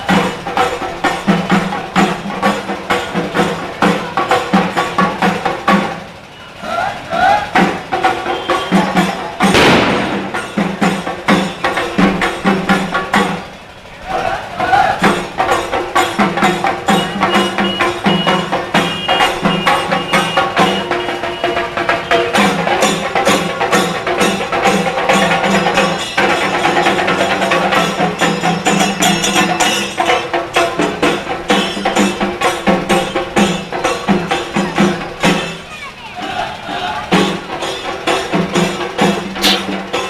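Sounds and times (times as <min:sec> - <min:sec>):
procession band playing: 0:00.0 - 0:40.0
sharp drum strikes: 0:07.6 - 0:13.6, 0:37.1 - 0:40.0.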